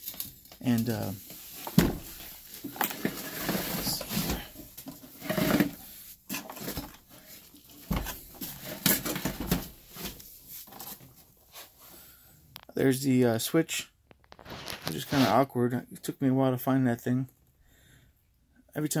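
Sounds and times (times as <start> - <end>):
handling noise on plastic: 0.0 - 11.8, 14.1 - 15.4.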